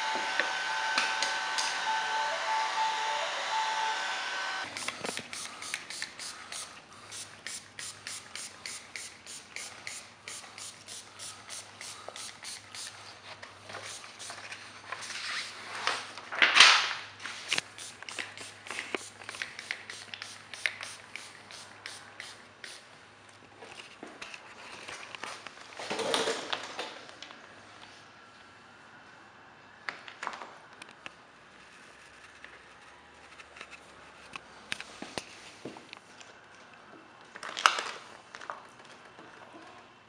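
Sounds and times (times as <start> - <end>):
heat gun whining: 0.0 - 6.7.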